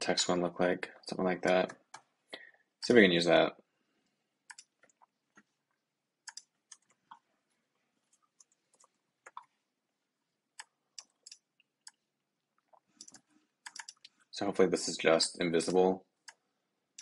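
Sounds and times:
computer keyboard typing: 4.5s - 5.1s, 6.2s - 7.2s, 8.1s - 9.5s, 10.6s - 12.0s, 12.7s - 14.1s.

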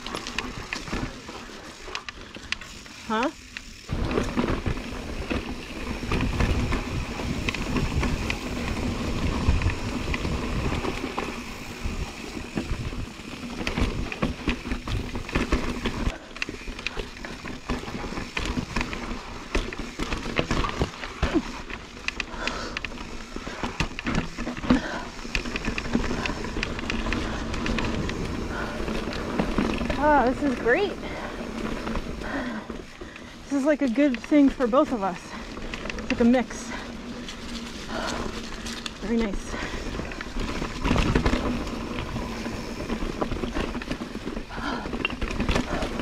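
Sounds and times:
bike knocks and rattles: 0.0s - 46.0s
bike tyres on dirt and stones: 0.0s - 46.0s
wind rumble on microphone: 6.0s - 15.8s.

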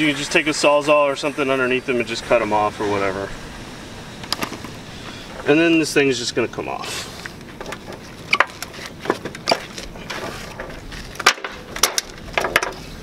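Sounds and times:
metal knocks and clunks: 7.5s - 12.9s.

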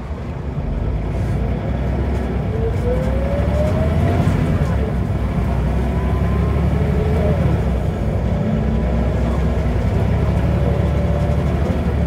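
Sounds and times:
bus diesel engine drone: 0.0s - 12.0s.

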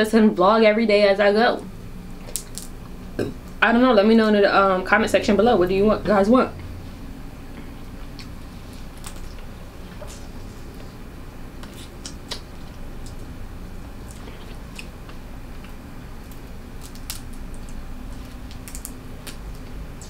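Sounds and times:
crab shell cracking: 2.2s - 2.8s, 14.0s - 20.0s
chewing: 7.6s - 11.0s, 11.6s - 13.3s, 14.0s - 20.0s.

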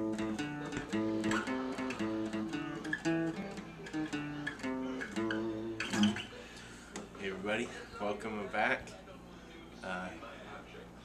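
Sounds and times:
acoustic guitar picked melody: 0.0s - 6.6s.

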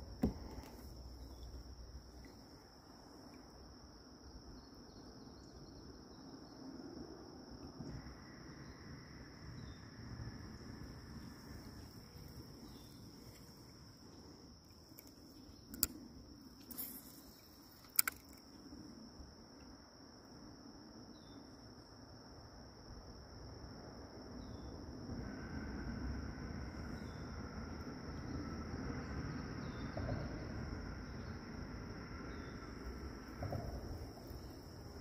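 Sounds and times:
crickets chirping: 0.0s - 35.0s
sharp clicks: 14.9s - 16.0s, 16.6s - 18.5s.

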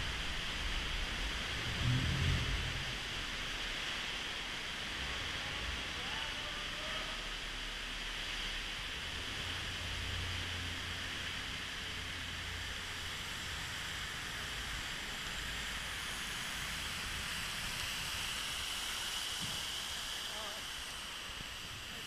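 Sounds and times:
low rumble: 0.0s - 6.0s
churning sea water rushing: 0.0s - 22.0s.

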